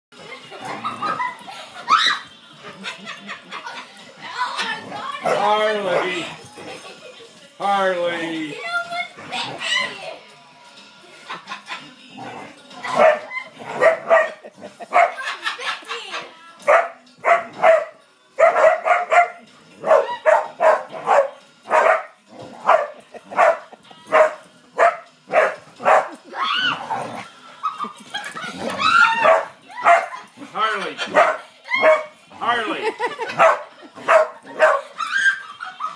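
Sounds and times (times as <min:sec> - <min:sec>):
dogs barking: 0:04.6 - 0:06.4, 0:12.8 - 0:15.5, 0:16.6 - 0:32.2, 0:32.9 - 0:35.9.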